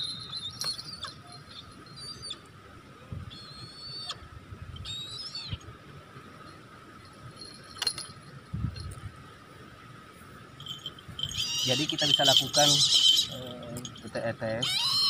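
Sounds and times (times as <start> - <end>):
kite giving high calls: 10.6 - 13.7, 14.5 - 15.0.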